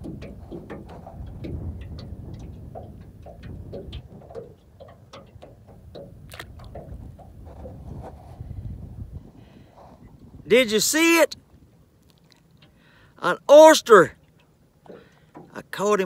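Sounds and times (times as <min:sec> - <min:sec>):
wind rumble on microphone: 0:00.0 - 0:10.7, 0:11.3 - 0:11.9.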